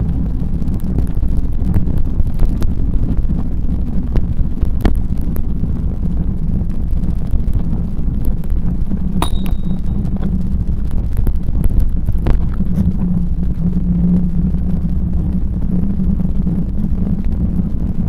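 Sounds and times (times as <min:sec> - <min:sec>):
bicycle tyres on paved path: 0:00.0 - 0:09.1
wind buffeting microphone: 0:00.0 - 0:18.0.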